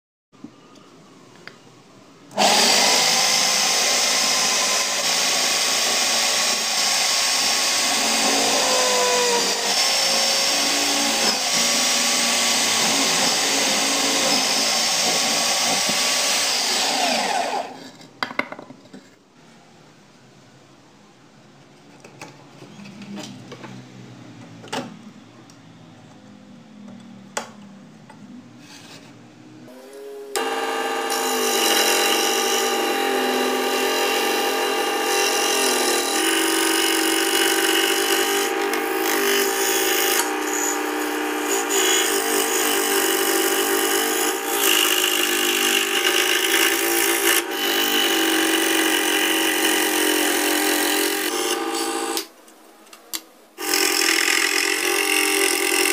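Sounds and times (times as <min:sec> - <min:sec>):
scroll saw cutting wood: 0:02.4 - 0:18.0, 0:29.7 - 0:52.3, 0:53.6 - 0:55.9.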